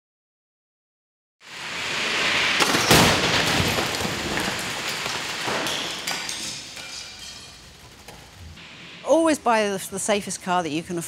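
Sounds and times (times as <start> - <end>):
rush of noise: 1.4 - 7.0
hiss: 1.4 - 9.2
loud car crash: 1.5 - 8.3
debris clattering: 1.8 - 8.6.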